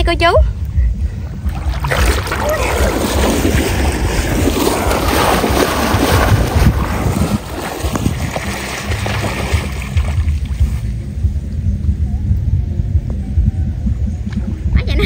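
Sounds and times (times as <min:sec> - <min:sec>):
wind rumbling on microphone: 0:00.0 - 0:15.0
wading through water splashing: 0:01.2 - 0:10.9.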